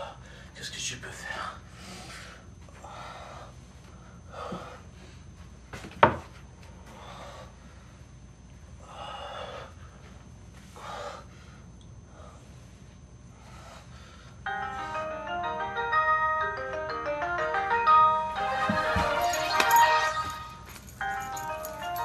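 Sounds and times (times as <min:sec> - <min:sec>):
man breathing heavily and gasping: 0:01.6 - 0:05.4, 0:06.7 - 0:08.1, 0:08.7 - 0:15.2.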